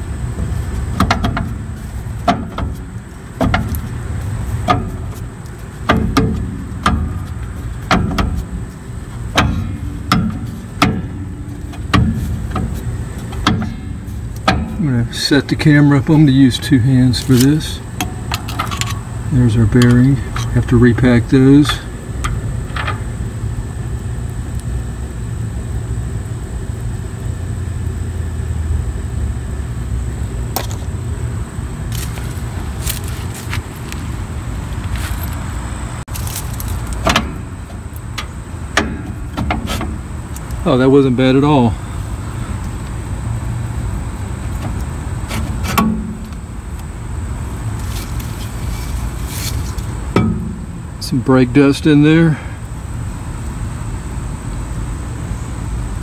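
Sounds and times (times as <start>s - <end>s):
steady low rumble: 0.0s - 56.0s
metallic clanks of brake drum: 0.4s - 4.0s, 4.6s - 15.7s, 36.2s - 40.1s, 44.6s - 46.5s, 49.4s - 51.1s.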